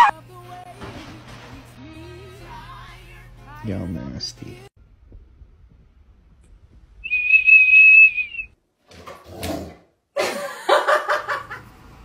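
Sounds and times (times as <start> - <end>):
plastic whistle high note: 7.0 - 8.6.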